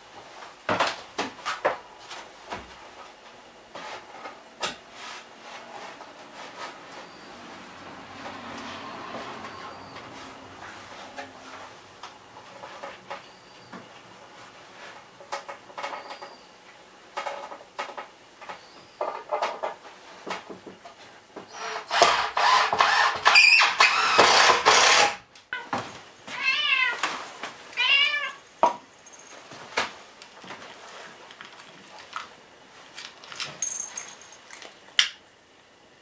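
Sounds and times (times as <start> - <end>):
cat meowing: 26.3 - 27.0, 27.8 - 28.4.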